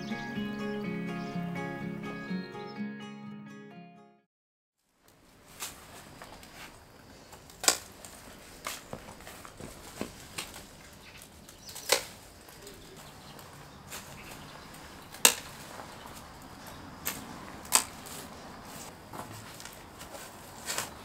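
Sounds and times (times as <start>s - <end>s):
pruning shears snipping stems: 7.3s - 21.0s.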